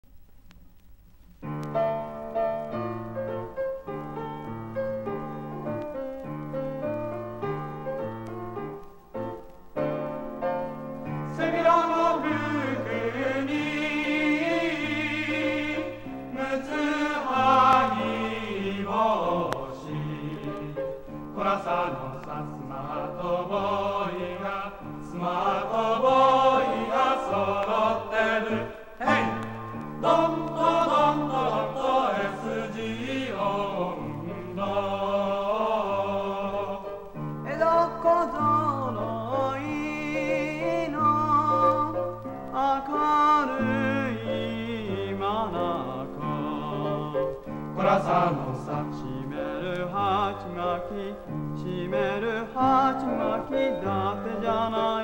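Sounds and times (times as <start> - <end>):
male chorus singing: 11.3 - 55.0.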